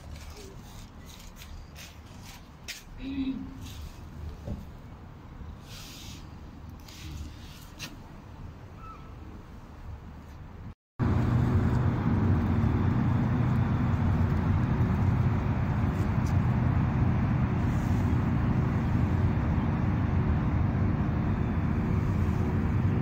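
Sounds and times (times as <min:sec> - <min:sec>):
soft rustles: 0:00.0 - 0:04.7
engine hum: 0:09.3 - 0:23.0.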